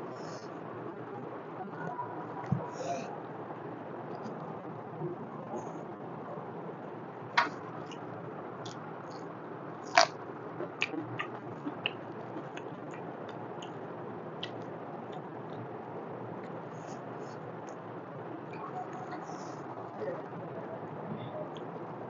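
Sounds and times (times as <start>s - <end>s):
chewing with wet mouth clicks: 9.9s - 13.8s, 14.4s - 15.7s.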